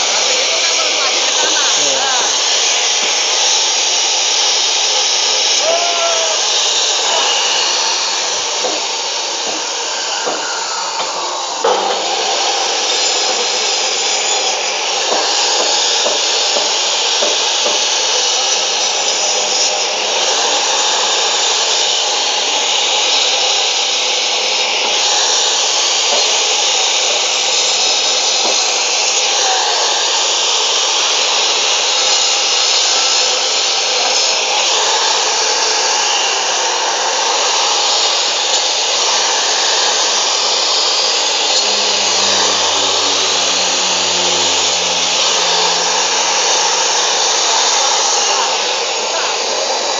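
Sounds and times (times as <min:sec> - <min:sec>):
saw cutting meat and bone: 0:34.0 - 0:48.5.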